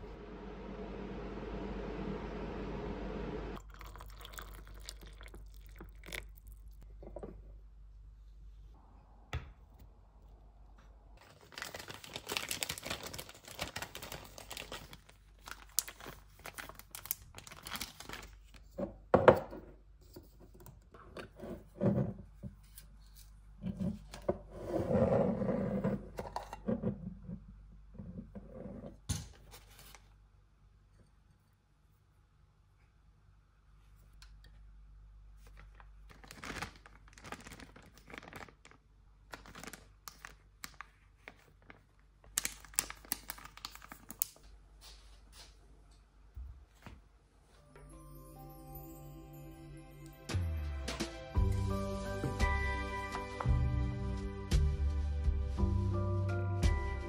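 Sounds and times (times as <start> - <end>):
cellophane bag crinkling: 11.2 - 18.7, 35.4 - 44.4.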